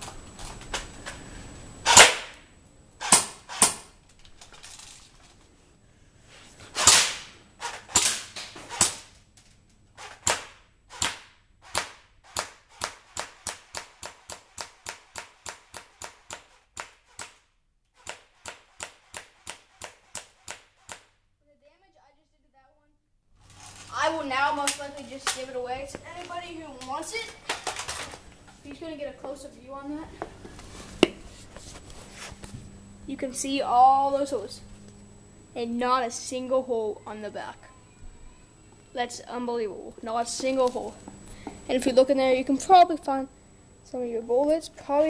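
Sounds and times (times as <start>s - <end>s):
airsoft rifle shots popping: 1.9s - 2.4s, 6.8s - 9.1s.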